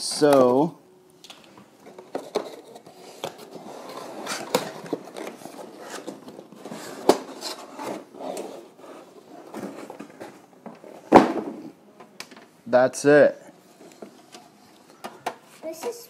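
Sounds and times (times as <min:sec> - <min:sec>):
cardboard rustling and scraping: 0:01.8 - 0:11.6.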